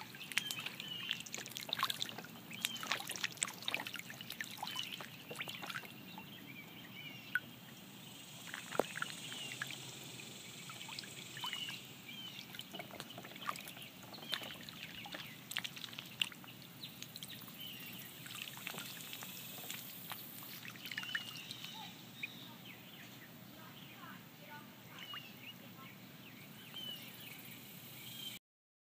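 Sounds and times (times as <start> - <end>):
ducklings splashing in water: 0.0 - 22.4, 24.9 - 25.6
duckling peeps: 10.7 - 22.0.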